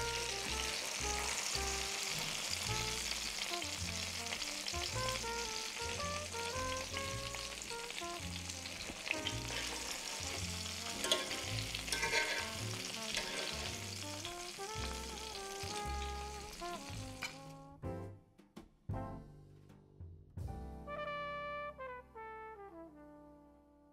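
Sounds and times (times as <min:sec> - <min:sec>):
fish sizzling in oil: 0:00.0 - 0:17.6
background music: 0:00.0 - 0:23.9
utensil clicking against pan: 0:11.0 - 0:12.6.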